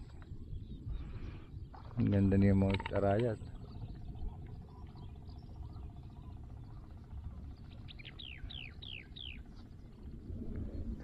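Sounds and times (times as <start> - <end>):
steady low rumble: 0.0 - 11.0
bird whistling: 7.9 - 9.4.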